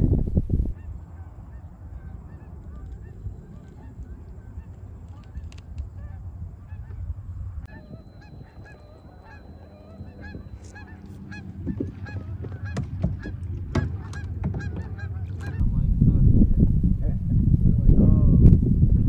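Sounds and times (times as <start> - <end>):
low rumble: 0.0 - 0.8, 5.9 - 19.0
geese honking: 0.7 - 15.6.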